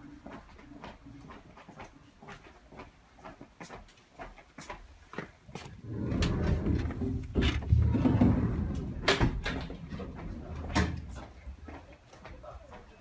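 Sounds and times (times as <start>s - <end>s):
low rumbling footfalls: 5.6s - 11.8s.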